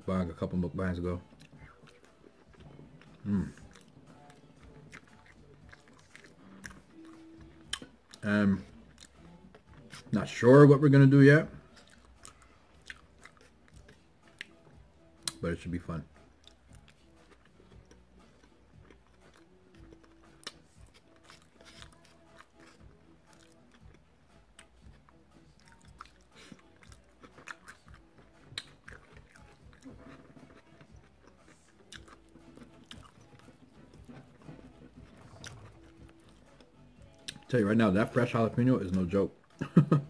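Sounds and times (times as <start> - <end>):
wet chewing mouth clicks: 1.3 - 10.1, 11.7 - 15.4, 16.4 - 37.5.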